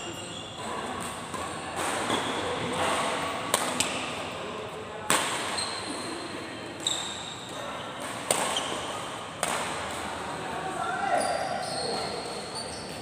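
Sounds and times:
sneakers squeaking on court: 0.0 - 2.8, 5.5 - 6.2, 6.8 - 9.1, 11.1 - 13.0
racket striking shuttlecock: 8.0 - 8.8, 9.4 - 10.0.

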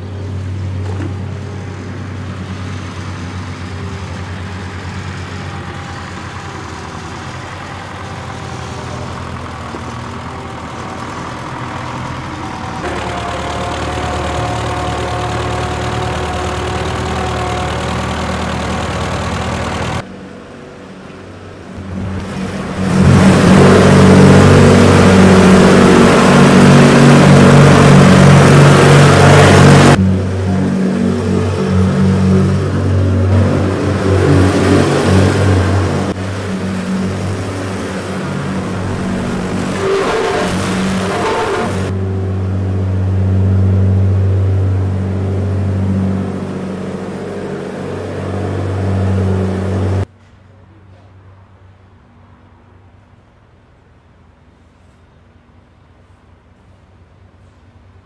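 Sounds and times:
plate compactor running: 0.0 - 20.1, 21.0 - 50.1
backhoe engine running: 0.0 - 50.1.

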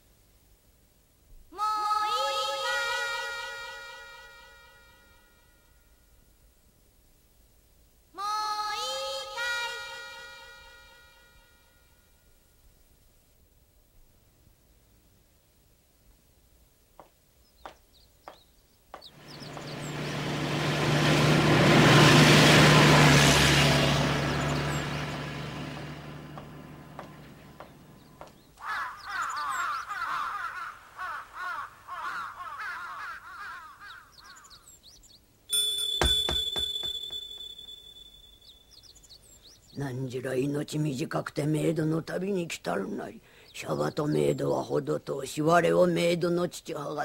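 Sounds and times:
rushing swell with low hum: 19.2 - 28.0
warbling bird chirps: 33.7 - 39.8
high ringing tone: 35.5 - 38.8.

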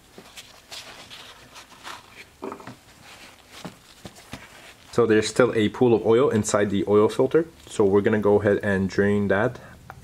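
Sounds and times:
paper towels rustling: 0.0 - 5.3.

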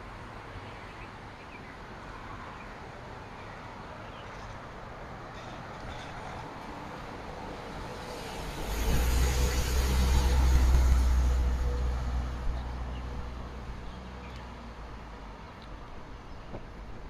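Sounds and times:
background traffic: 0.0 - 17.0
bus engine rumble: 4.2 - 17.0.

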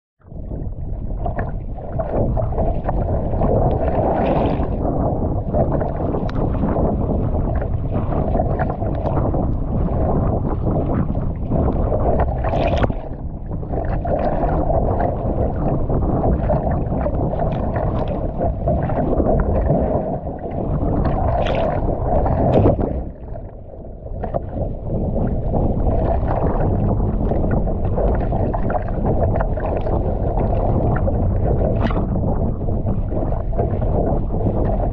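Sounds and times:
wind on microphone: 0.2 - 34.9
water splashing against kayak: 0.3 - 34.9.

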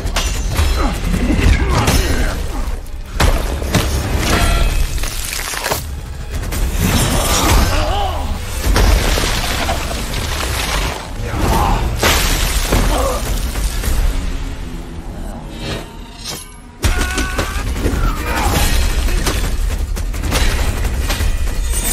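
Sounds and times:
ice shattering: 4.1 - 5.9, 8.5 - 14.0.

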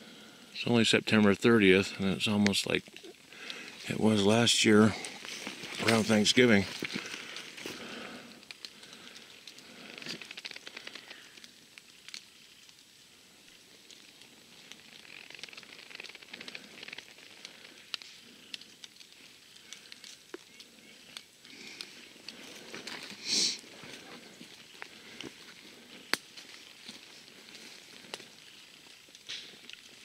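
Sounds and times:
twigs crackling: 1.4 - 30.0
footsteps crunching through dry leaves: 22.0 - 30.0.

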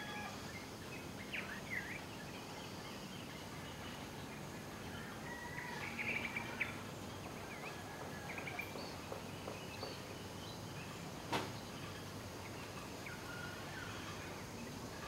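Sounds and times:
outdoor background hiss: 0.0 - 15.0.

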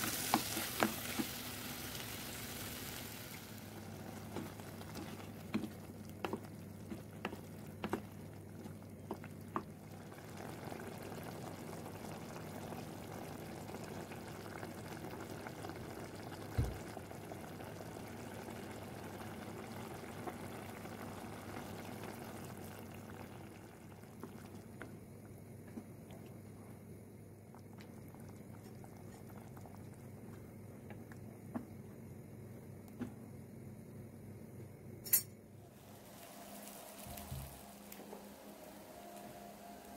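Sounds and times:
tomatoes bubbling in a pot: 0.0 - 34.1, 35.6 - 39.9.

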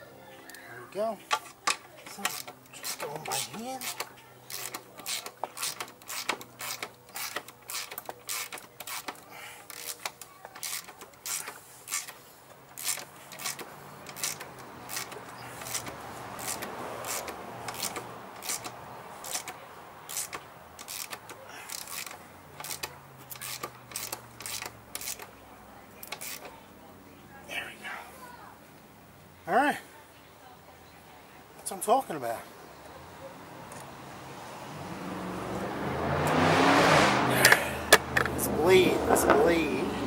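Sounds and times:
socket ratchet clicking: 1.3 - 12.2, 12.8 - 25.3.

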